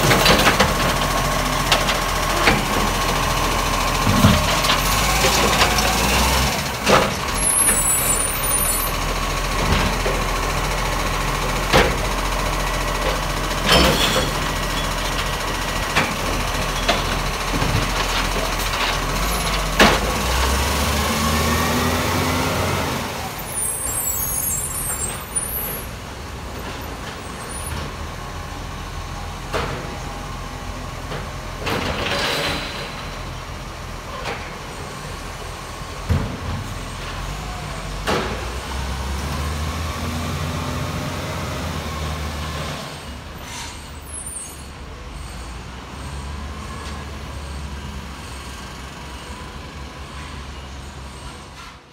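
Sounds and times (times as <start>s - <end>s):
truck diesel engine running: 0.0s - 31.9s
air brakes hissing: 23.4s - 25.9s, 43.3s - 46.3s.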